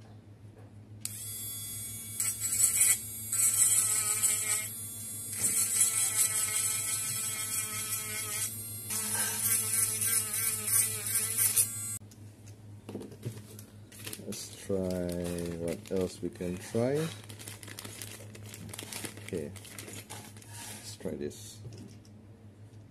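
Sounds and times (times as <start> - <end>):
rotary tool whining: 1.0 - 12.0.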